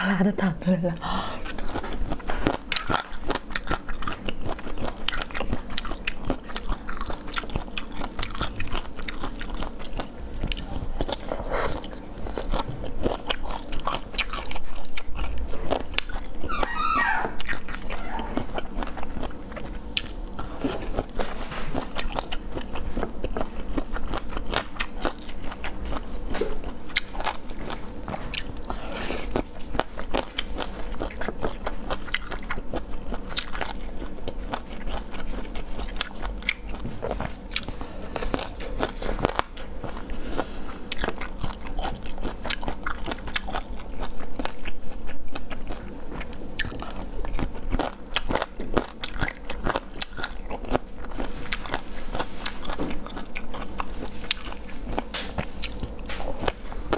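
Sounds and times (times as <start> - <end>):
chewing crunches: 1.3 - 56.9
wavering squeak: 16.4 - 18.4.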